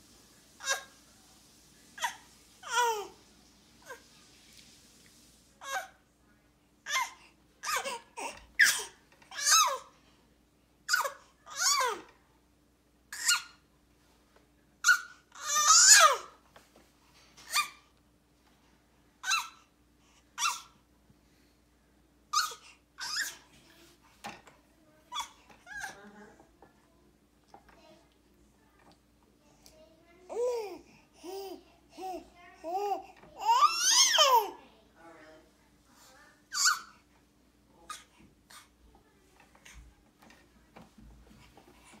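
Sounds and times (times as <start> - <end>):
baby squealing: 22.4 - 23.4, 33.4 - 34.4, 36.5 - 36.9.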